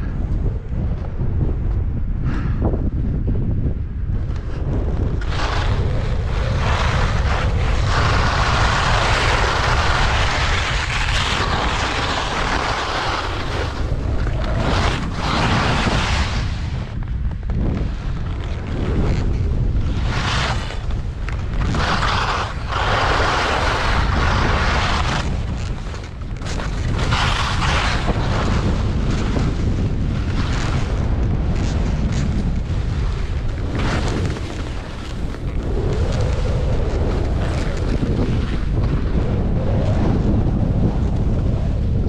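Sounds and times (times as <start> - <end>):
wind buffeting microphone: 0.0 - 42.0
skis scraping on snow: 4.2 - 41.9.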